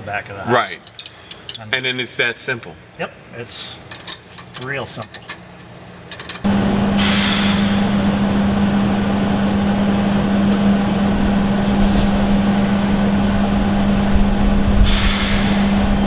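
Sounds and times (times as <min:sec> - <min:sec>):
machine drone: 0:06.4 - 0:16.0.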